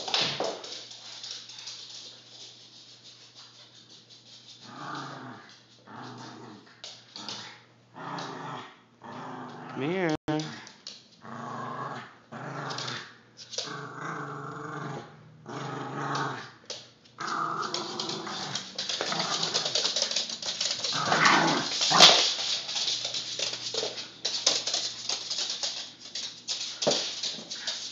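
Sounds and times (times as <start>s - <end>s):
dog growling: 4.6s - 16.6s, 17.2s - 23.0s.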